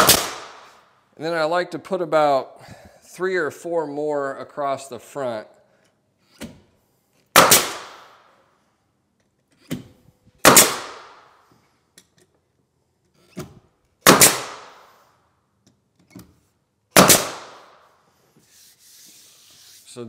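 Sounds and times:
nail gun firing: 0.0s - 0.8s, 7.3s - 8.2s, 10.4s - 11.3s, 14.0s - 15.0s, 16.9s - 17.8s.

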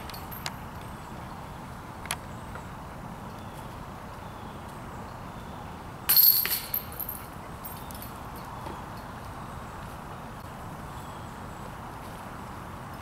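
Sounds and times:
disc golf basket chains jingling: 0.0s - 1.1s, 6.1s - 9.1s
quiet outdoor background: 0.0s - 13.0s.

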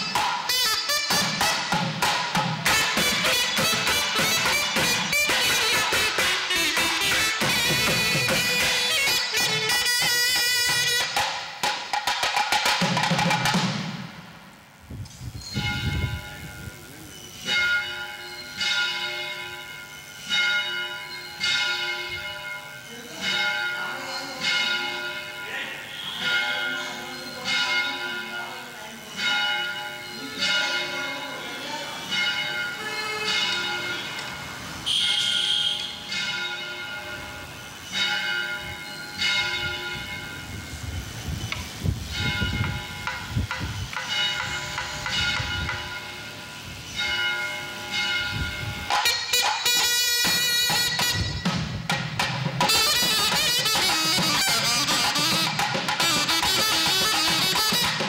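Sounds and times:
reed instruments and drums band: 0.0s - 14.8s, 48.9s - 58.0s
bell struck ringing: 15.4s - 41.1s, 42.0s - 58.0s.

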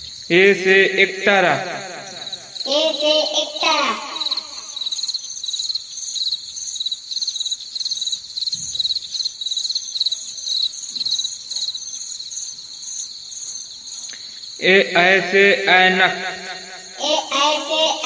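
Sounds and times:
crickets chirping: 0.0s - 18.0s.

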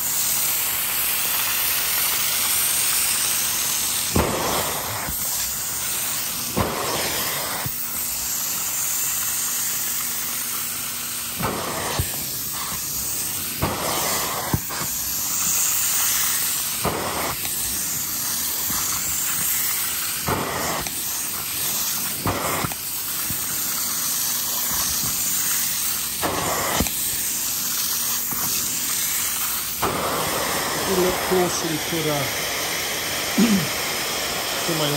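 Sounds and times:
upholstery extraction tool suction hiss: 0.0s - 34.9s.

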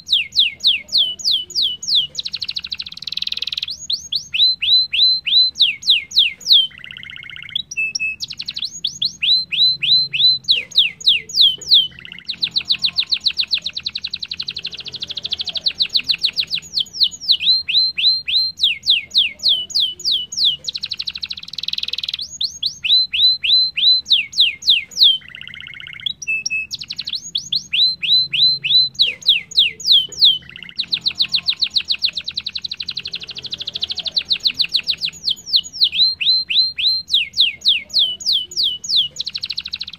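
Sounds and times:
canary singing: 0.0s - 39.9s.

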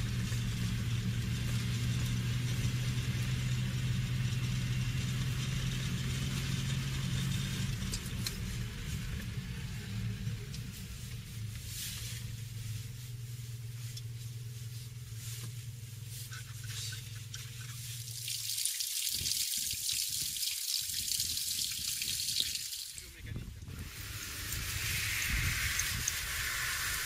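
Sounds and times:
car engine hum: 0.0s - 18.5s, 22.4s - 27.0s
crackling hiss of water droplets: 16.6s - 23.1s, 23.7s - 27.0s
tyre hiss on wet road: 23.7s - 27.0s.

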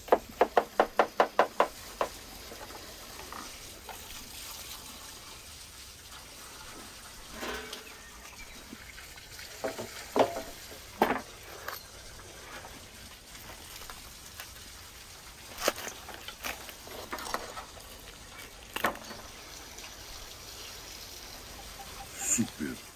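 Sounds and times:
faint steady hiss: 0.0s - 22.9s
food crunching: 15.3s - 19.1s.

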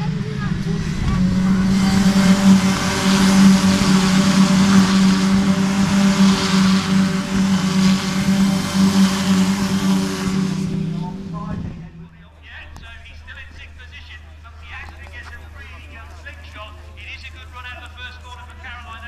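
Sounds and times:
rush of cars passing: 0.0s - 12.6s
race car engines droning: 0.0s - 17.8s.

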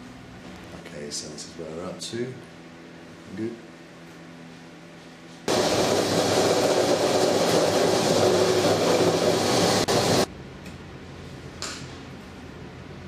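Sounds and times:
drill press boring: 5.5s - 10.3s.

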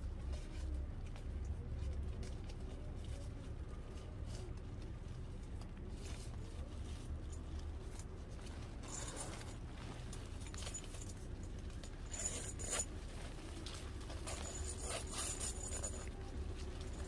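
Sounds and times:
metal zipper jingling and clicking: 8.0s - 13.0s, 14.1s - 17.0s
zipper rattle: 8.0s - 13.0s, 14.0s - 17.0s.

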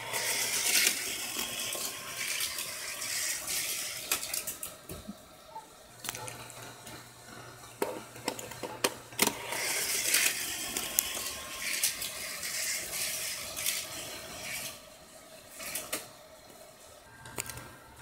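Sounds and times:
toy car rattling and scraping: 0.0s - 4.8s, 6.1s - 14.8s, 15.5s - 16.1s.

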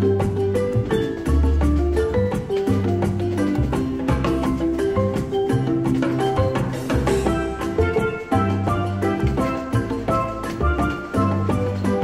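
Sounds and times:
upbeat calypso music: 0.0s - 12.0s.

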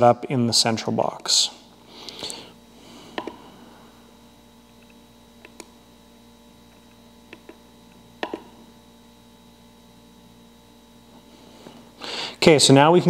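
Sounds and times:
faint steady hum: 0.0s - 13.0s
radio transmitter control clicks: 4.7s - 5.7s, 6.7s - 7.6s, 8.2s - 8.5s.

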